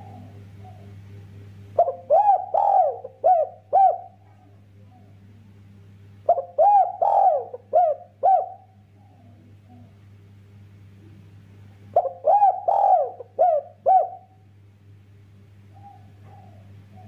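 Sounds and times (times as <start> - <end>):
dove cooing: 0.0 - 1.0, 1.8 - 5.2, 6.2 - 10.0, 11.9 - 14.4, 15.7 - 17.0.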